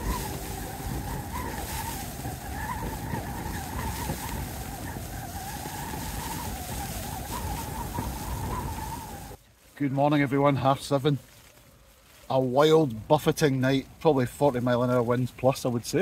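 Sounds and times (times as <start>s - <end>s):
low wind rumble: 0.0s - 9.4s
strong wind buffeting a tent: 0.0s - 9.4s
wavering wind whistle: 0.0s - 9.4s.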